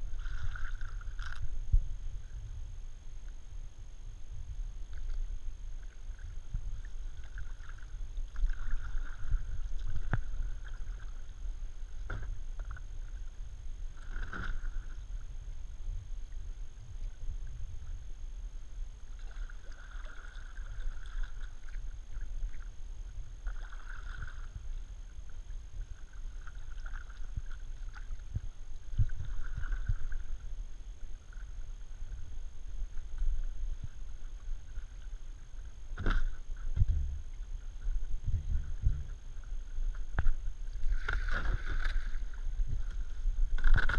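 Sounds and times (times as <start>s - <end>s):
paddle splashing in water: 0.0s - 1.5s, 5.8s - 11.3s, 14.0s - 15.0s, 19.1s - 22.7s, 23.4s - 24.7s, 38.6s - 43.9s
low rumble: 0.0s - 43.9s.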